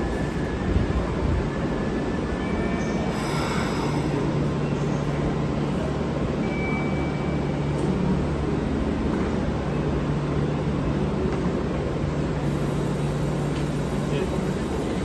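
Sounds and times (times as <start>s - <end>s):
electric train humming: 0.0s - 15.0s
station platform hubbub: 0.0s - 15.0s.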